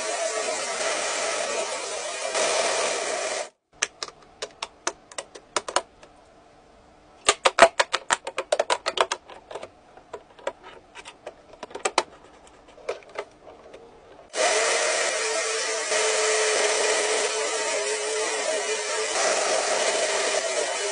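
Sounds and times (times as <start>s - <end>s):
plastic parts clicking together: 3.8s - 6.1s, 7.2s - 13.8s.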